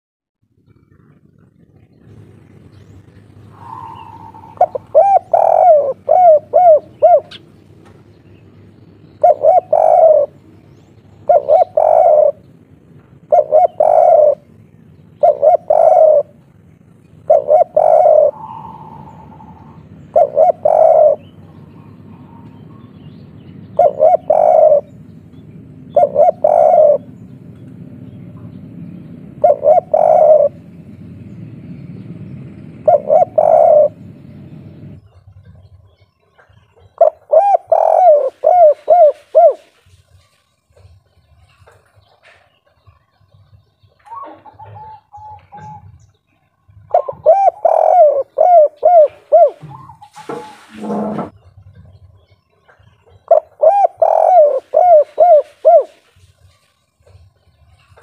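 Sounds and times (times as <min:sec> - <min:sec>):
dove cooing: 0:00.7 - 0:07.6, 0:08.8 - 0:27.6, 0:28.6 - 0:51.4, 0:52.6 - 0:57.3.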